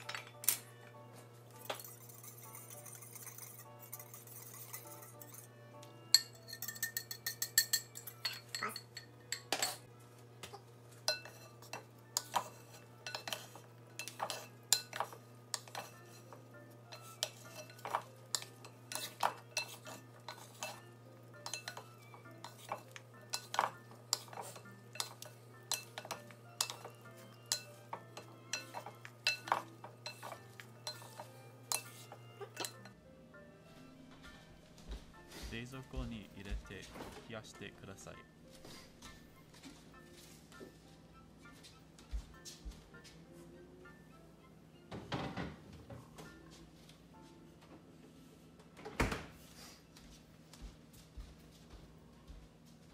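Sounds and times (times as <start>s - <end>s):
whisk clinking against bowl: 1.7s - 5.5s, 6.1s - 9.8s, 16.9s - 20.8s, 21.4s - 27.7s, 28.5s - 32.8s.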